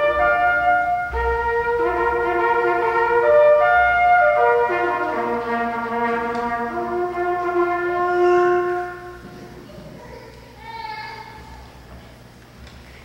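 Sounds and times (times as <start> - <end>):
solo trumpet slow melody: 0.0 - 9.4.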